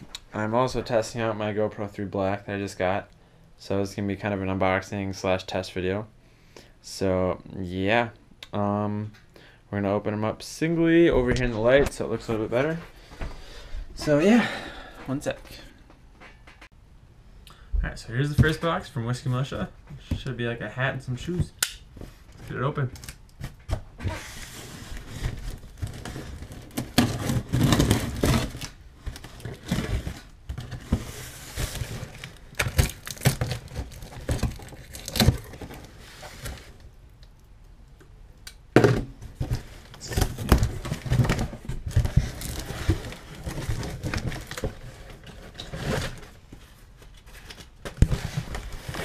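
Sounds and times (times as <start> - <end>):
cardboard flaps rustling: 39.0 - 49.0.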